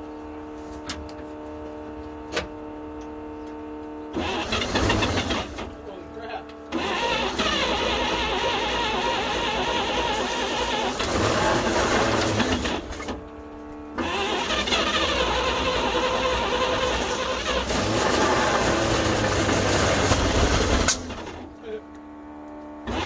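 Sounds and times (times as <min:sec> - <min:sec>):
truck engine cranking: 0:04.2 - 0:05.8, 0:06.7 - 0:13.2, 0:14.0 - 0:21.5.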